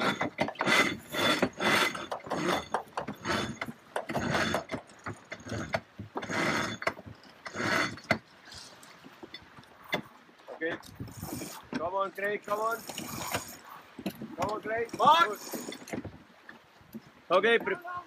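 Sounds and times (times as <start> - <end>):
winch ratcheting: 0.0 - 8.9, 10.8 - 16.2.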